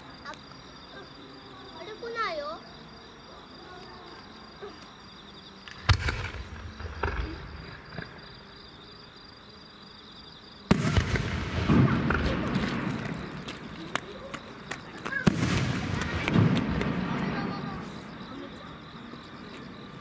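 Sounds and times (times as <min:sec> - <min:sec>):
firework shells bursting: 0:05.6 - 0:08.2, 0:10.7 - 0:14.1, 0:15.0 - 0:17.5
firework crackling: 0:05.6 - 0:08.3, 0:10.7 - 0:18.2.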